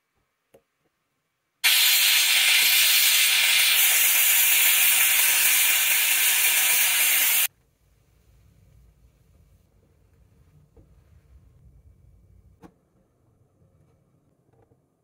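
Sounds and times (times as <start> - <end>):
steam cleaner hissing: 1.6 - 7.5.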